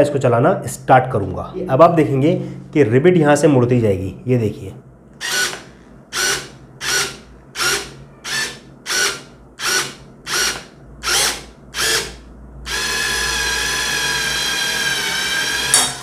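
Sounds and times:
drill whining: 0:05.2 - 0:16.0.

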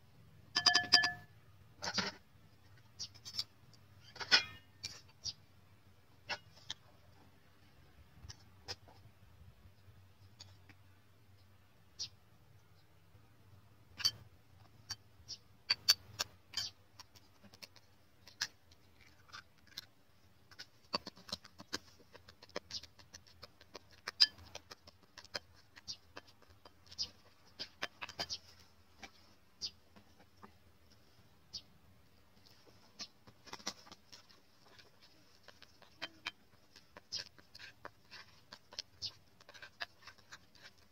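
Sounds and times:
metal spoon scraping bowl: 0:22.7 - 0:28.6.

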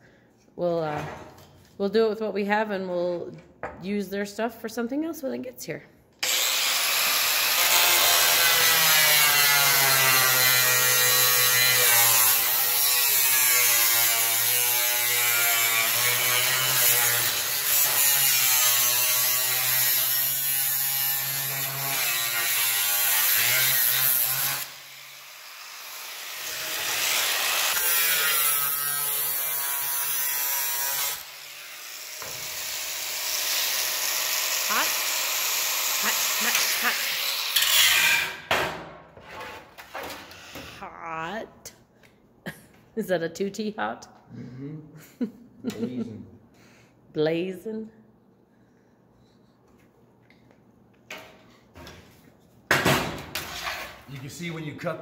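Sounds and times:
angle grinder grinding steel: 0:06.2 - 0:38.5.

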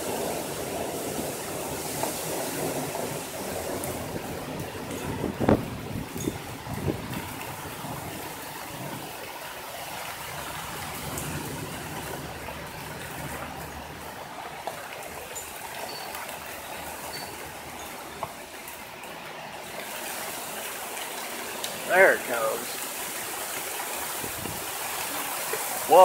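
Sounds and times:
storm wind rushing through trees: 0:00.0 - 0:26.0
wind thumps on microphone: 0:01.9 - 0:09.2, 0:24.1 - 0:24.8.

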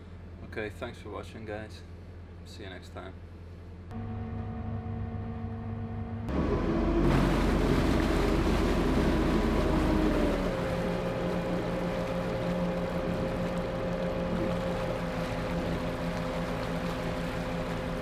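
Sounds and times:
boat engine revving: 0:03.9 - 0:18.0
propeller wash churning water: 0:06.8 - 0:18.0.

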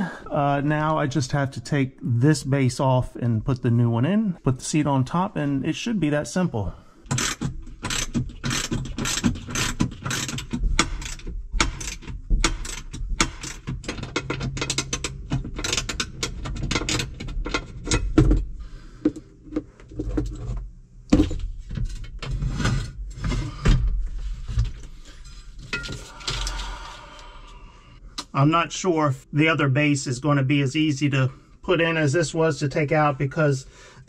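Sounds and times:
ratchet wrench clicking: 0:07.1 - 0:16.2
metal clicks and knocks: 0:07.1 - 0:22.3.

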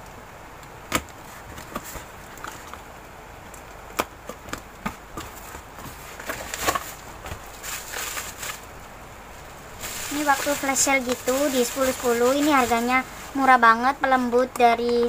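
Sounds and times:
cardboard flaps rustling: 0:00.9 - 0:02.9, 0:04.0 - 0:08.7, 0:09.7 - 0:13.4
bubble wrap crinkling: 0:05.2 - 0:13.7.

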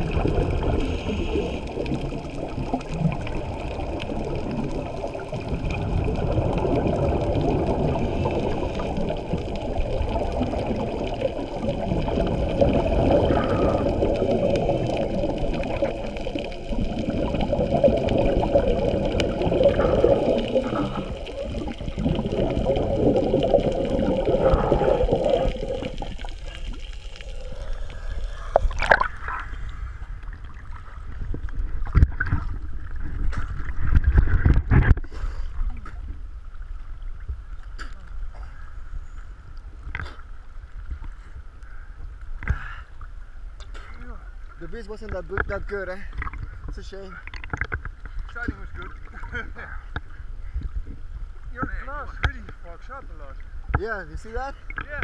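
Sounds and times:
underwater regulator bubbles: 0:00.0 - 0:35.0.

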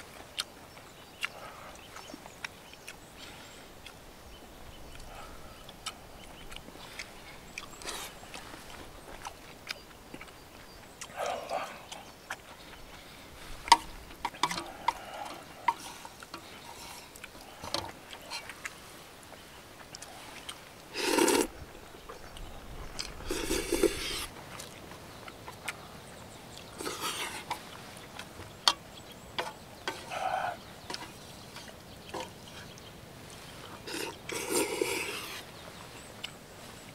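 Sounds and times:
person slurping noodles: 0:20.9 - 0:21.6, 0:23.2 - 0:24.3, 0:33.9 - 0:35.4.

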